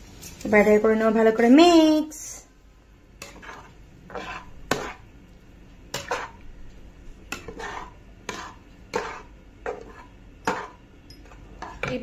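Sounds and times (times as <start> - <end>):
metal spatula scraping a pan: 3.2 - 5.2, 5.9 - 6.5, 7.3 - 12.0.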